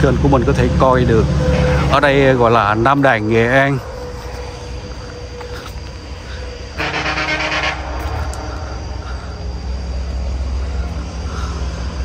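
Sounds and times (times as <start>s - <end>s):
rumble of passing vehicles: 0.0s - 12.0s
vehicle horn: 1.4s - 2.0s, 6.8s - 9.1s.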